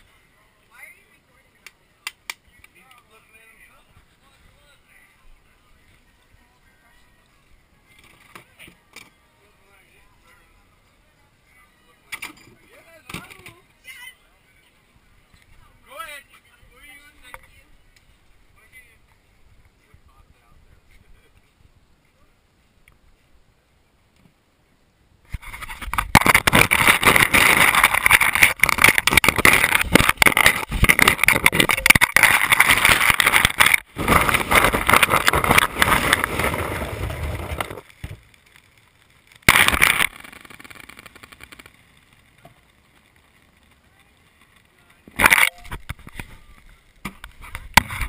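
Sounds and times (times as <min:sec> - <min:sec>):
ice cubes clattering and crunching: 0:26.1 - 0:37.8, 0:39.4 - 0:41.9.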